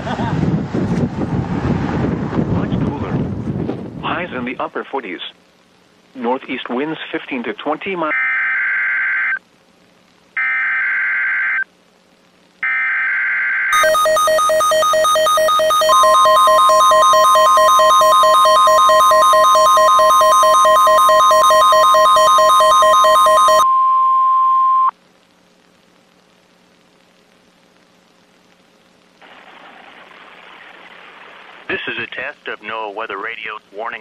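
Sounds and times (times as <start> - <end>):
rapidly pulsing electronic alarm: 8.1 - 9.4, 10.4 - 11.6, 12.6 - 24.9
steady warning alarm tone: 10.4 - 11.6, 12.6 - 24.9
raspy digital data bursts: 13.7 - 23.6.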